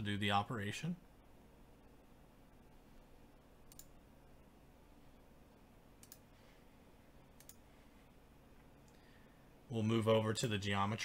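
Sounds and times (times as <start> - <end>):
faint low hum: 0.0 - 11.0
computer mouse clicks: 3.7 - 4.0, 6.0 - 6.3, 7.4 - 7.6.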